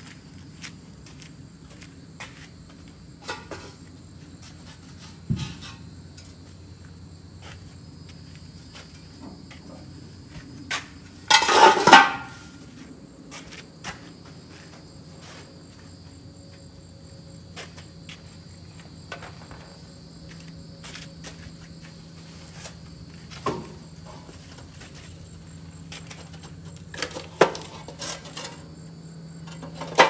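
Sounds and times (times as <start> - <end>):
insects chirring: 0.0 - 30.0
hard objects clattering: 11.3 - 12.5.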